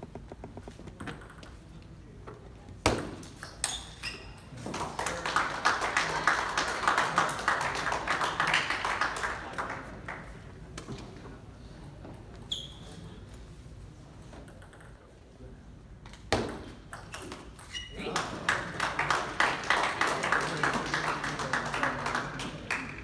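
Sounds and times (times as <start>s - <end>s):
table tennis ball bouncing: 0.0s - 1.6s, 14.5s - 15.0s, 16.3s - 17.7s
crowd noise: 17.9s - 23.0s.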